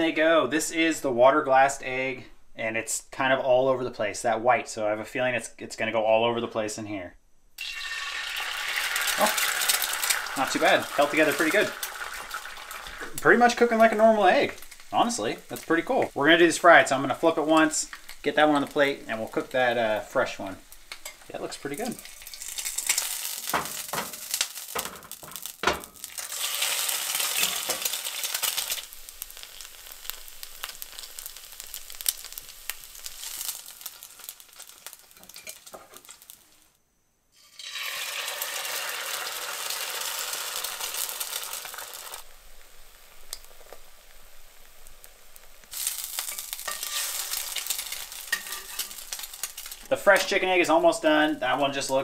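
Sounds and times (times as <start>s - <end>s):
eggs sizzling in a skillet: 7.6s - 52.0s
metal spatula scraping a pan: 45.8s - 50.3s.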